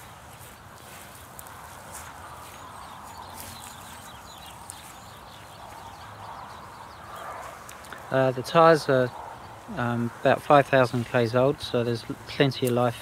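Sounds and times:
outdoor background hiss: 0:00.0 - 0:13.0
soft steps on grass: 0:00.0 - 0:13.0
high bird chirps: 0:01.9 - 0:08.0.

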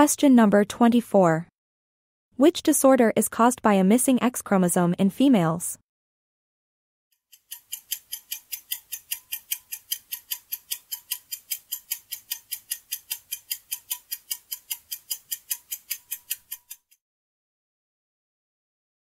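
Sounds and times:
fast clock ticking: 0:07.3 - 0:17.0.

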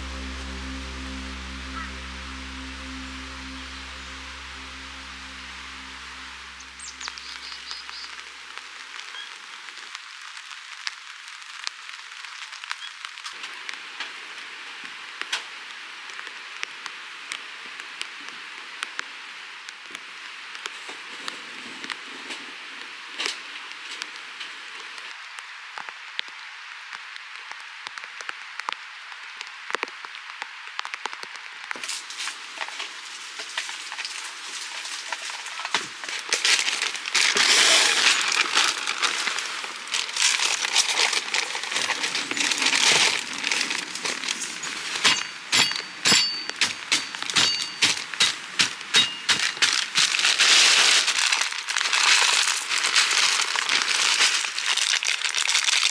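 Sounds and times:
rain on tent fabric: 0:00.0 - 0:55.9.

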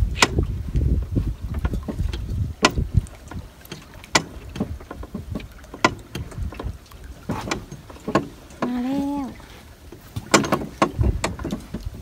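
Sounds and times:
water lapping: 0:00.0 - 0:12.0
rope knocks and clicks: 0:09.9 - 0:12.0.

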